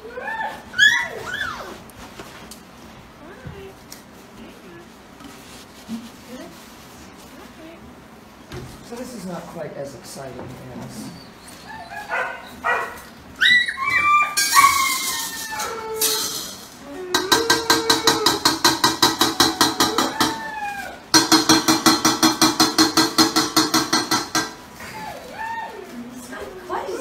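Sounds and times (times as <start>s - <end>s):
puppies whimpering and yelping: 0.0s - 1.9s, 11.0s - 18.3s.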